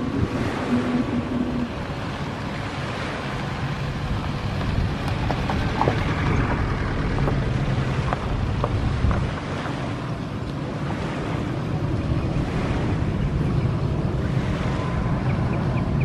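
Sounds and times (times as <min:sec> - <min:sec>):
low rumble: 0:00.0 - 0:10.0
surf-like background sound: 0:00.0 - 0:16.0
wind buffeting microphone: 0:00.0 - 0:16.0.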